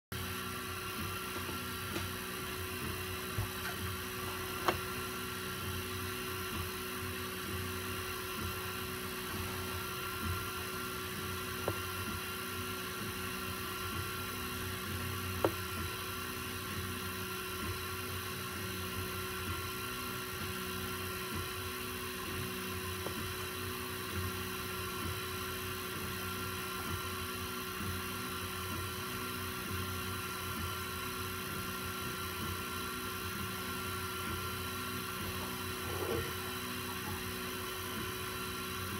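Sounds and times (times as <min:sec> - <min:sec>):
fans humming: 0:00.1 - 0:38.9
stepper motors buzzing: 0:30.7 - 0:38.9.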